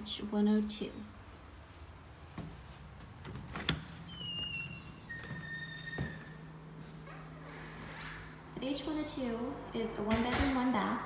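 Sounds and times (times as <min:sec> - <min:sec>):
low steady hum: 0:00.0 - 0:11.0
door hinges squealing: 0:03.5 - 0:08.3.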